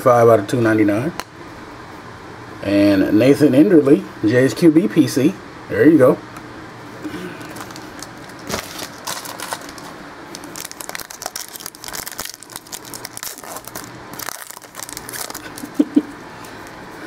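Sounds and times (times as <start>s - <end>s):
card pack wrapper crinkling: 7.4s - 16.0s.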